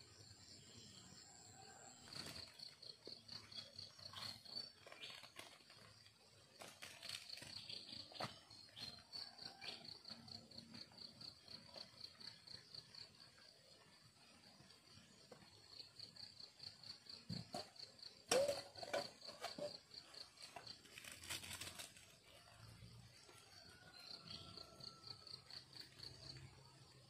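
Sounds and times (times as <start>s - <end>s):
faint insect chirping: 0.0s - 27.0s.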